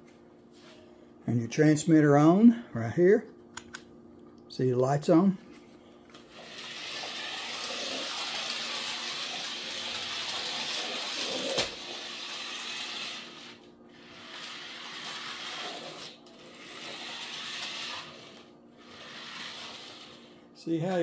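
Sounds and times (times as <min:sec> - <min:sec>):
toy truck motor whirring: 0:06.3 - 0:20.4.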